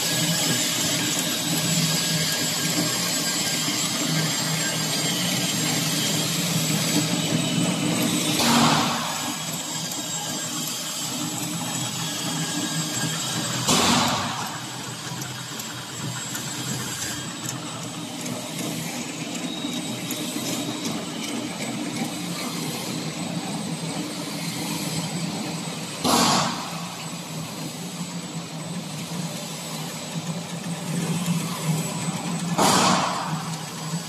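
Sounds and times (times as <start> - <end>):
chain conveyor humming: 0.0 - 34.0
loud burst of noise: 4.5 - 15.2, 25.7 - 28.1, 31.1 - 34.0.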